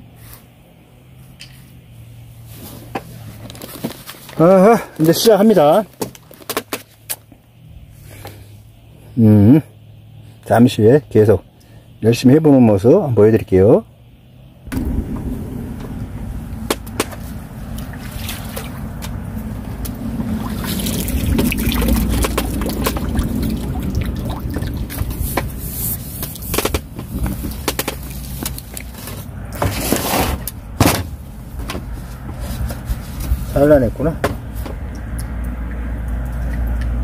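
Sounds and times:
steady low rumble: 0:14.6 - 0:25.6
sharp knocks: 0:14.7 - 0:17.4
water splashing and trickling: 0:15.7 - 0:29.2, 0:34.5 - 0:37.0.

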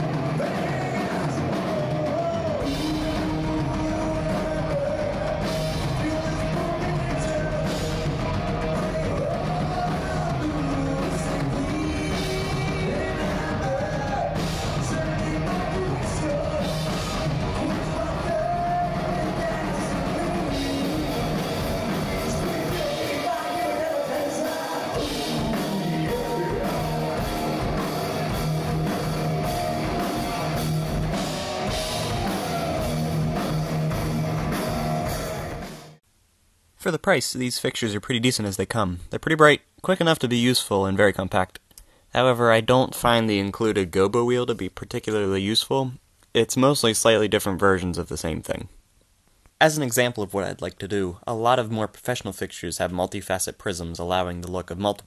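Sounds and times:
person singing: 0:00.0 - 0:35.7
electric guitars: 0:00.0 - 0:36.0
drums: 0:00.0 - 0:40.8.

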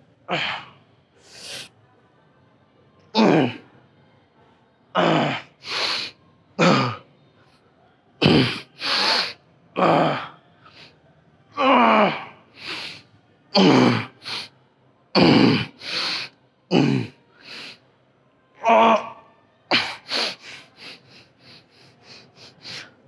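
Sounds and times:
man panting: 0:12.6 - 0:13.0, 0:19.7 - 0:23.0.

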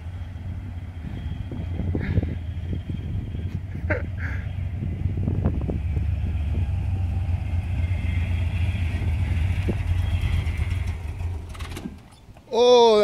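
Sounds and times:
truck engine running: 0:00.0 - 0:12.4.

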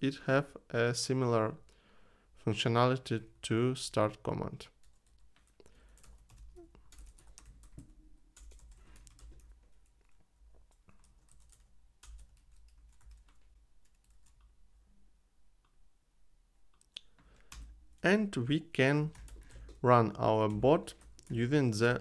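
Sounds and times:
faint keyboard typing: 0:04.7 - 0:14.6, 0:16.7 - 0:18.1, 0:18.9 - 0:22.0.

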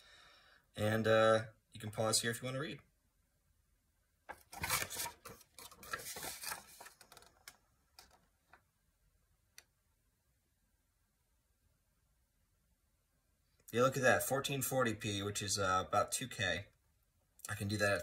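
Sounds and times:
paper leaflet rustling: 0:04.3 - 0:08.2.

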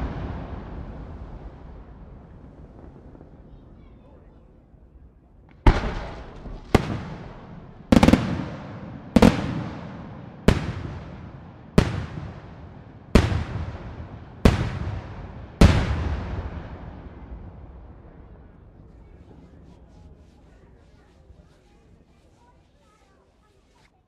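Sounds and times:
echoing rumble: 0:00.0 - 0:19.2
firework shells bursting: 0:05.5 - 0:12.4.

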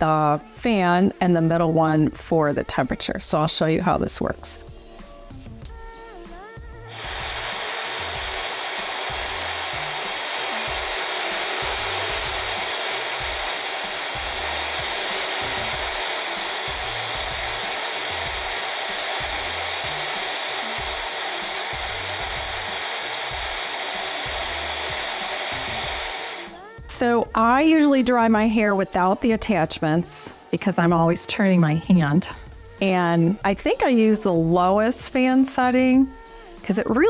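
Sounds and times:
hair dryer fan blowing: 0:06.8 - 0:26.8
hair dryer switch: 0:06.9 - 0:26.6.

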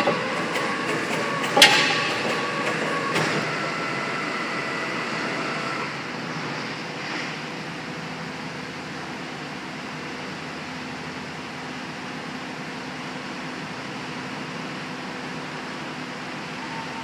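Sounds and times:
sharp metal clank: 0:00.0 - 0:03.4
hydraulic piling machine running: 0:00.0 - 0:17.0.

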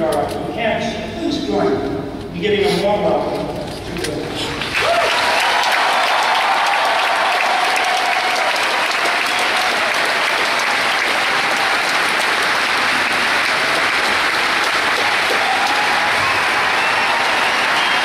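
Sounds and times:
audience applauding: 0:04.5 - 0:18.0.

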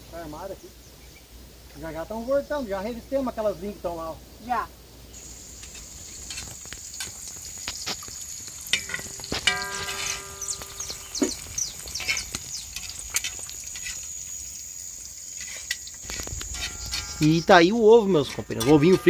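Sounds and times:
egg sizzling in a pan: 0:04.4 - 0:19.0
crackling fat pops: 0:05.1 - 0:17.2.

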